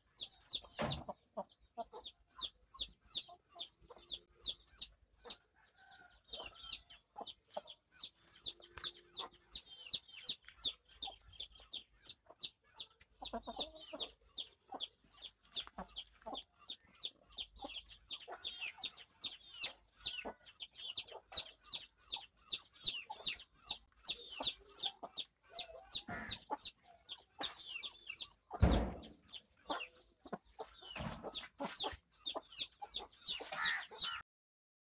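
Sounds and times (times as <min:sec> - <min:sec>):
chickens clucking: 0:00.0 - 0:34.2
chicks peeping: 0:00.0 - 0:34.2
loud thump: 0:28.6 - 0:29.2.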